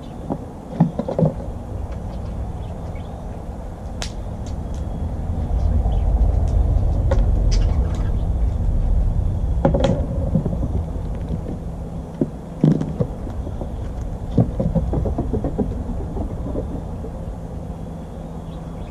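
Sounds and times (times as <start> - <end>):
low rumble: 1.4 - 18.9
acorns knocking on wooden deck: 9.6 - 17.1.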